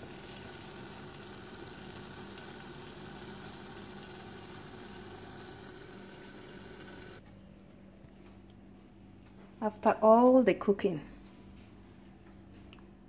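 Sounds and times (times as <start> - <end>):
paste sizzling in a pot: 0.0 - 7.2.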